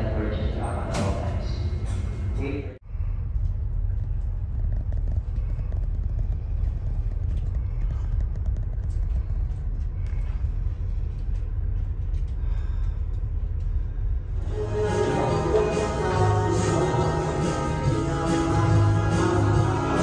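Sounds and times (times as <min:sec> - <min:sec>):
music: 0:14.4 - 0:20.0.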